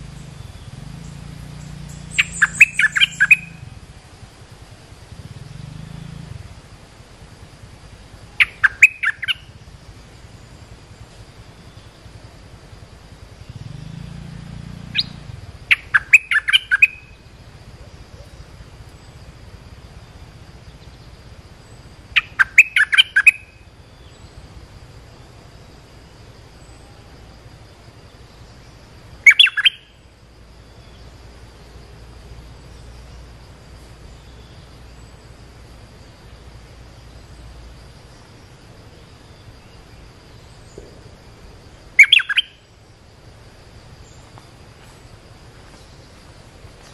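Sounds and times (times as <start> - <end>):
bird decoy chirping: 1.6 - 3.7, 8.3 - 9.5, 14.9 - 17.2, 22.2 - 24.2, 29.2 - 29.9, 42.0 - 42.6.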